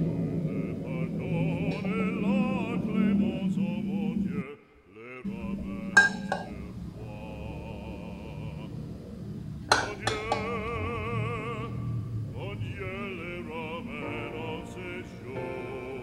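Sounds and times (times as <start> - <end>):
music with operatic singing: 0.0 - 16.0.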